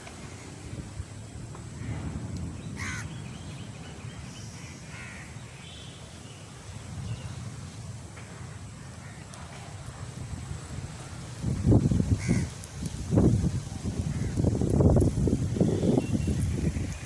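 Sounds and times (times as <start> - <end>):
crows cawing: 2.8 - 3.2, 4.6 - 5.4, 12.1 - 12.6.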